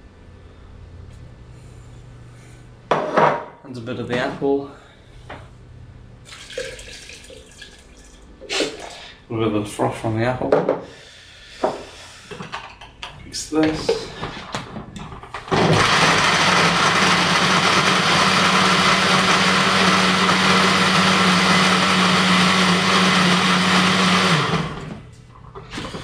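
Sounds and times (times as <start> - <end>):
blender running with ice: 15.4 - 25.1.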